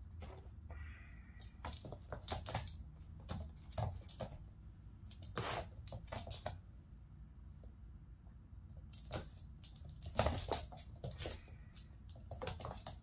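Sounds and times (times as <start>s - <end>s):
kittens scampering on floor: 1.4s - 4.5s, 8.8s - 13.0s.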